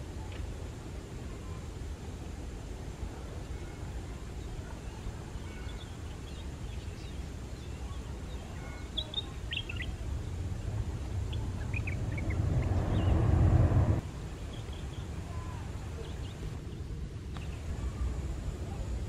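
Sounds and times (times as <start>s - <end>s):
birds chirping: 4.4s - 15.2s
jet engines rumbling: 9.2s - 14.4s.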